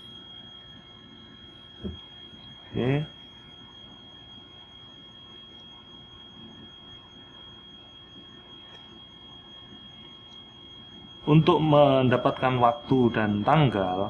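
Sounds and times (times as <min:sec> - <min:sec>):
steady high-pitched whine: 0:00.0 - 0:14.0.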